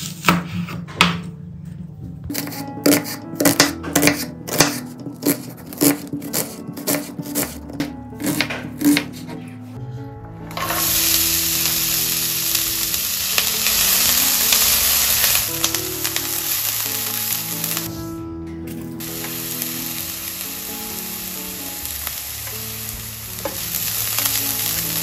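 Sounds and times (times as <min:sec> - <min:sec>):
background music with held notes: 0:00.0 - 0:25.0
food sizzling in hot oil: 0:10.5 - 0:18.0, 0:19.0 - 0:25.0.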